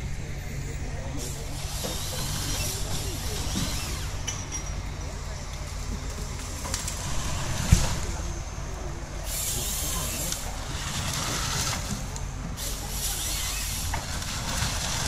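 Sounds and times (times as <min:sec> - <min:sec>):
diesel engine running: 0:00.0 - 0:15.0
harvester head hissing rasp: 0:01.2 - 0:04.3, 0:09.2 - 0:15.0.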